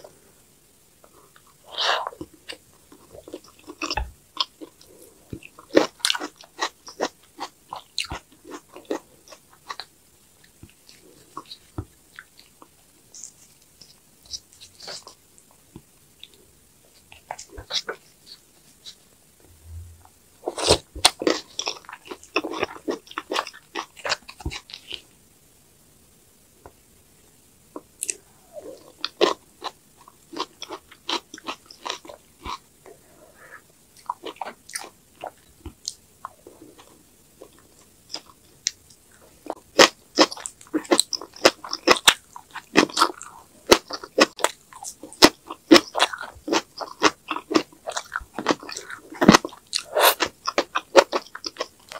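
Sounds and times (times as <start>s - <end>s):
person chewing and crunching: 1.3s - 15.2s, 20.4s - 25.0s, 27.8s - 32.6s, 34.0s - 51.9s.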